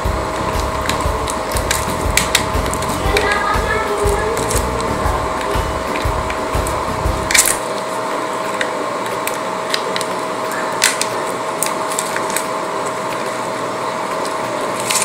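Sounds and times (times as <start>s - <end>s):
background hum: 0.0s - 8.2s
plastic wrapped remote clicking: 0.4s - 7.8s, 8.5s - 13.2s, 14.8s - 15.0s.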